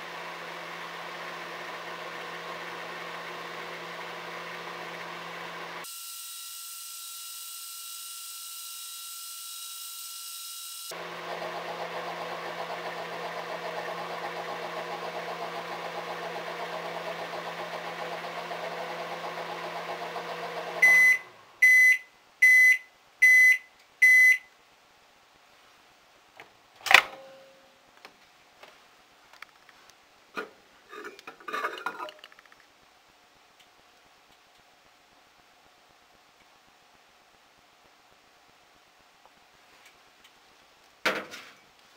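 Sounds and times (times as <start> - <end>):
microwave oven humming: 0.0 - 6.3, 10.9 - 21.4.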